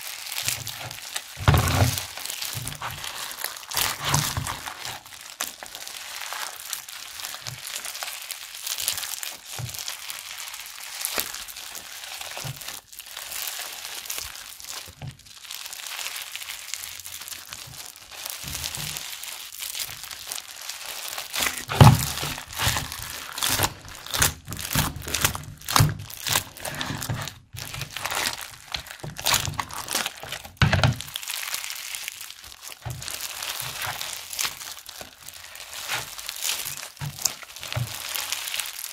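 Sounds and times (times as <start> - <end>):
slime beads crackling: 0.0 - 38.9
sticky slime pops: 21.3 - 31.2.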